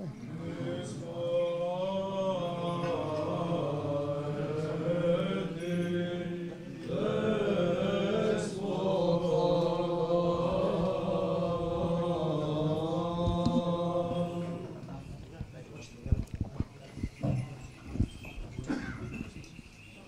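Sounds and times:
men singing church chant: 0:00.2 - 0:15.1.

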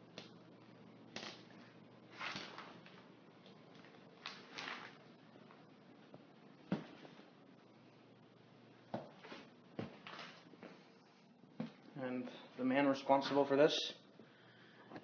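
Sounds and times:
rustling: 0:03.7 - 0:05.6.

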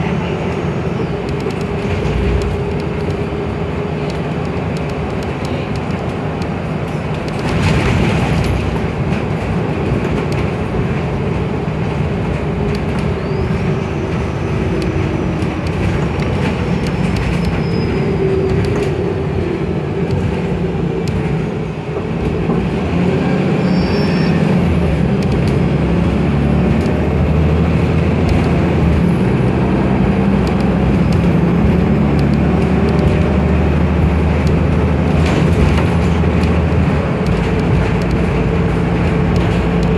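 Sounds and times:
bus engine drone: 0:00.0 - 0:39.9
road noise: 0:00.0 - 0:39.9.

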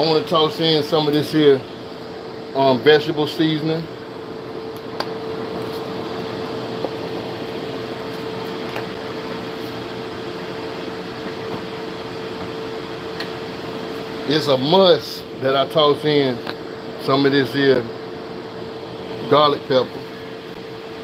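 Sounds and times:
air fryer fan whir: 0:00.0 - 0:21.0.

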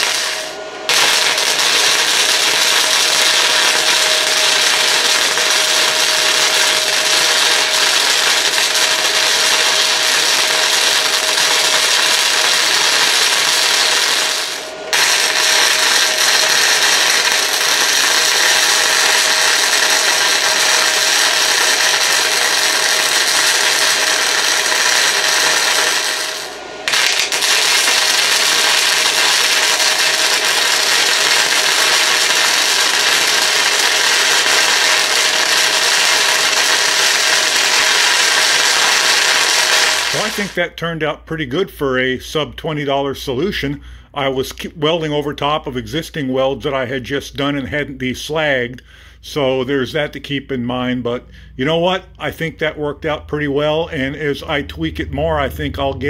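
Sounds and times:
welding arc crackling and hissing: 0:00.0 - 0:40.7.

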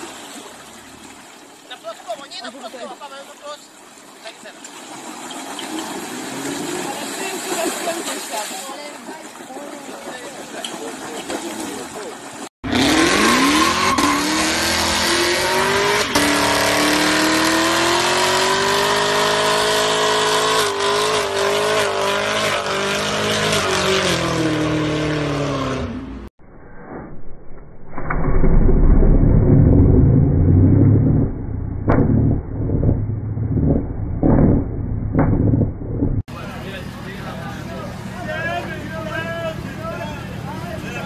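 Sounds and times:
car engine revving: 0:12.6 - 0:26.3, 0:29.4 - 0:36.3
muffled low rumble: 0:26.4 - 0:36.3
sharp knocks: 0:31.8 - 0:36.3.

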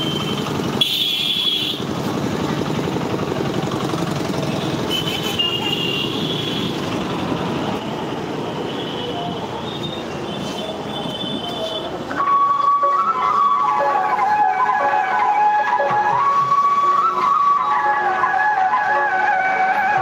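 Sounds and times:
motorbike engine and road rumble: 0:00.0 - 0:08.5.

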